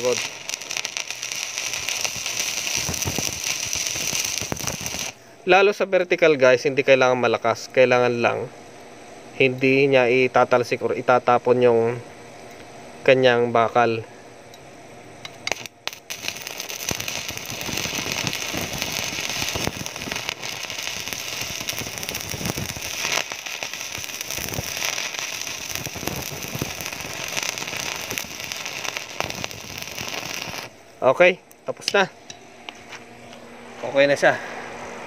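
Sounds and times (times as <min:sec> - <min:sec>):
welding arc crackling: 0:00.0 - 0:05.3, 0:15.2 - 0:31.2.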